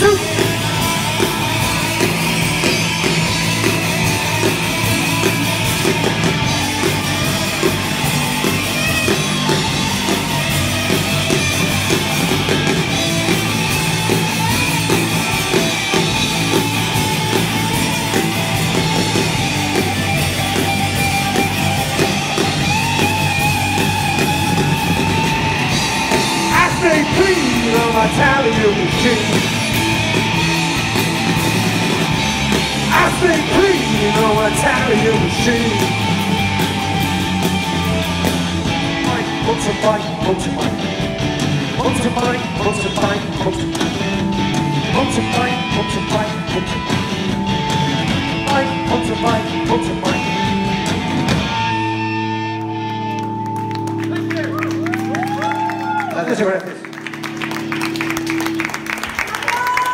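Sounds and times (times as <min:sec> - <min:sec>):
drum kit: 0:00.0 - 0:56.1
bass guitar: 0:00.0 - 0:59.9
electric guitars: 0:00.0 - 0:59.9.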